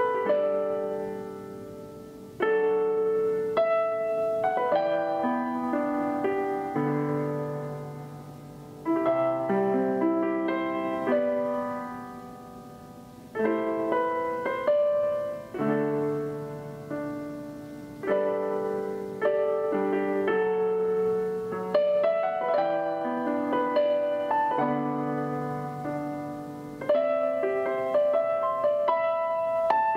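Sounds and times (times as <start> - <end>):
solo piano chords: 0.0 - 29.9.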